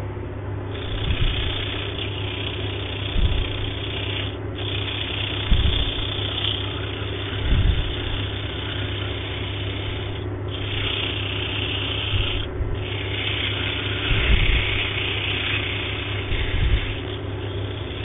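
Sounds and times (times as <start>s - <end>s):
wood lathe motor hum: 0.7s - 18.0s
sandpaper hissing on wood: 0.8s - 18.0s
low thumps: 3.1s - 3.6s, 5.4s - 6.0s, 7.4s - 8.1s.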